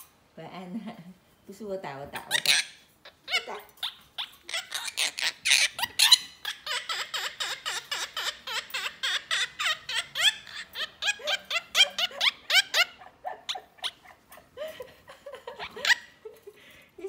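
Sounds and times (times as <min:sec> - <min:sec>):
parakeet imitating laughter: 0:02.3 - 0:16.6.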